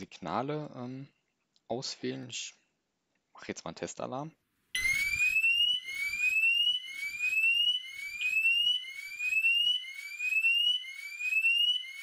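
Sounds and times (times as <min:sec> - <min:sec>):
alarm siren rising tone: 0:04.8 - 0:12.0.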